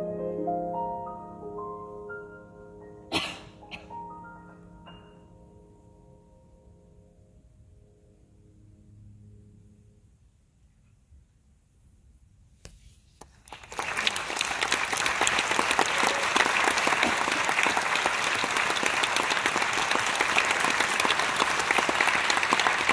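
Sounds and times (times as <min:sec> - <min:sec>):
audience applauding: 0:13.2 - 0:22.9.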